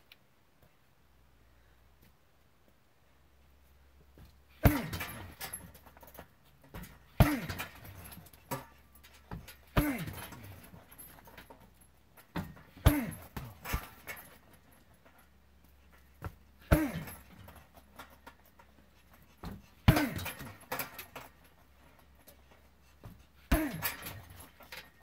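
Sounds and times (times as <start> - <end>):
kicks thudding on punching bag: 4.6 - 5.8, 6.7 - 8.6, 9.2 - 10.9, 12.3 - 14.3, 16.2 - 17.6, 19.4 - 20.9, 23.0 - 24.5
breathy grunt: 9.7 - 11.0, 12.8 - 14.3, 16.6 - 17.5, 23.4 - 24.5.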